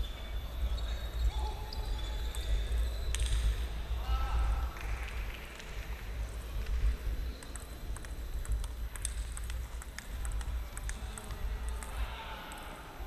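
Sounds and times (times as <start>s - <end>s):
low hum of hall: 0.0s - 13.0s
table tennis ball clicking: 7.4s - 12.0s.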